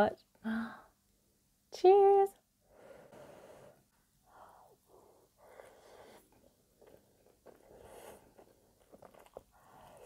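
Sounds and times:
chewing with mouth closed: 0:08.4 - 0:10.0.

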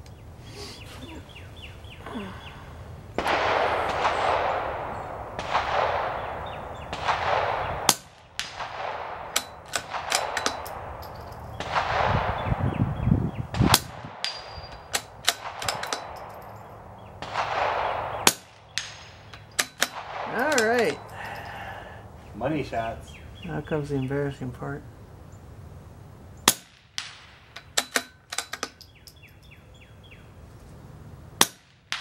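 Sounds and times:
rifle shots: 0:03.2 - 0:12.7, 0:13.5 - 0:21.1, 0:26.4 - 0:28.8
metallic target clangs: 0:09.4 - 0:11.6, 0:14.2 - 0:16.8, 0:18.2 - 0:21.6.

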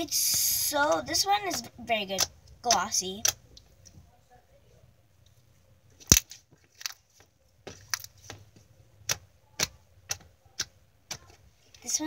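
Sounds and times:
slime clicking and popping: 0:06.0 - 0:07.0, 0:09.0 - 0:11.4.

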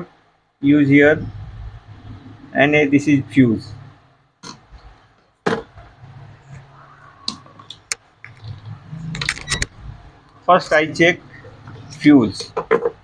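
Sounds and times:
clicks and knocks on workbench: 0:12.4 - 0:13.0.

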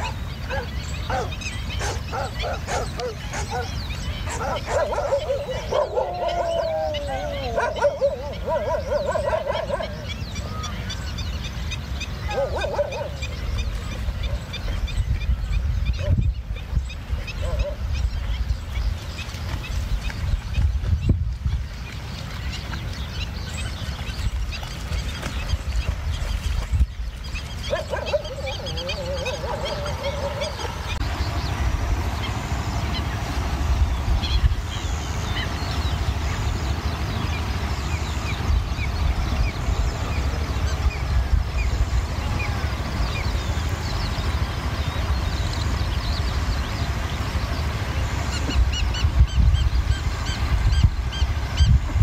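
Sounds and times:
dogs yelping: 0:00.0 - 0:10.8, 0:12.2 - 0:13.4, 0:17.2 - 0:18.0, 0:27.6 - 0:31.0
small birds chirping: 0:00.0 - 0:52.0
steady low rumble: 0:00.0 - 0:52.0.

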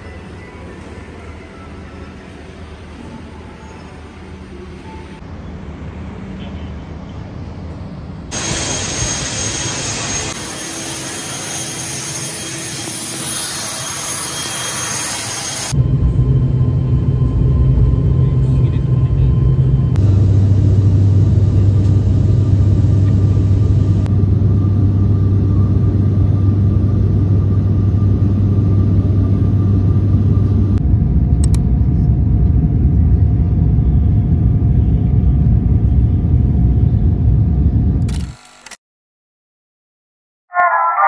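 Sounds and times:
airplane cabin engine rumble: 0:15.6 - 0:38.3.

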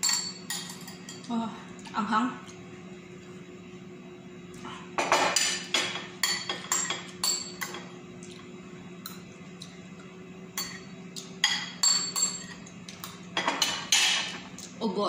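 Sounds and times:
spoon clinking ceramic bowl: 0:00.0 - 0:01.3, 0:10.6 - 0:14.3.

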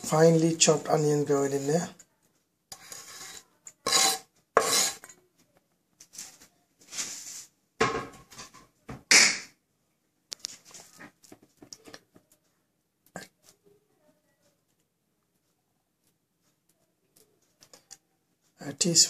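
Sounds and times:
scraping on wooden chopping board: 0:02.7 - 0:05.1.

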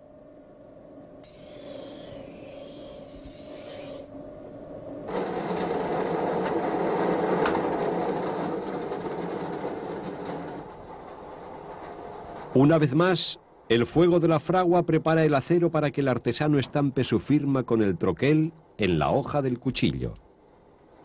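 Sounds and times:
knife grinding on wheel: 0:01.2 - 0:04.1.

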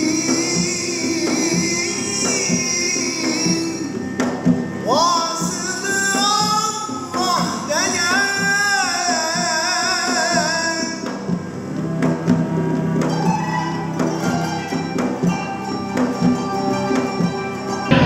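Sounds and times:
wavering melodic line with vibrato: 0:00.0 - 0:11.1, 0:11.7 - 0:18.0
plucked string notes: 0:09.8 - 0:18.0.

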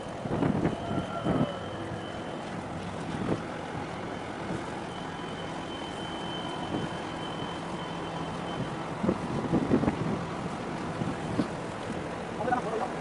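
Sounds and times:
wind on microphone: 0:00.0 - 0:04.9, 0:06.6 - 0:07.1, 0:08.5 - 0:12.5
ship engines droning: 0:00.0 - 0:13.0
water washing: 0:00.0 - 0:13.0.

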